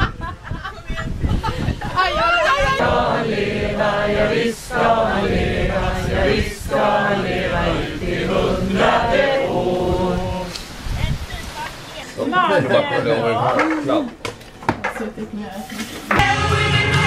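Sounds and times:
group of adults singing: 2.0 - 10.8.

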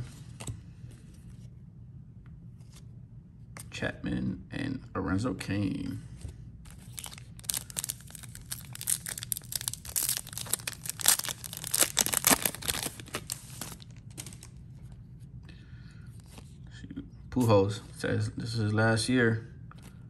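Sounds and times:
foil wrapper tearing and crinkling: 6.7 - 14.6.

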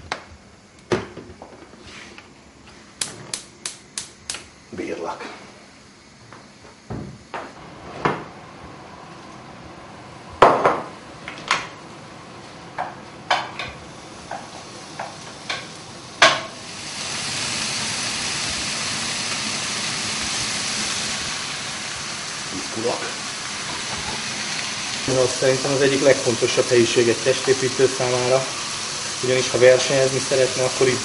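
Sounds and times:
chicken sizzling in a pan: 10.5 - 31.0.

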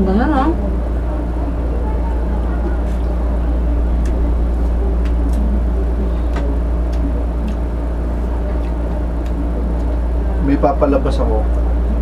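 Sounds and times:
steady low hum: 0.0 - 12.0
faint clicks and taps of eating: 5.0 - 5.5, 6.3 - 7.7.

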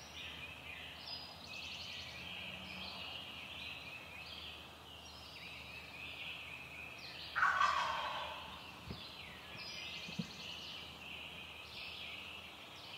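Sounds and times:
songbirds singing: 0.0 - 12.9
turkey gobbling: 7.4 - 8.5.

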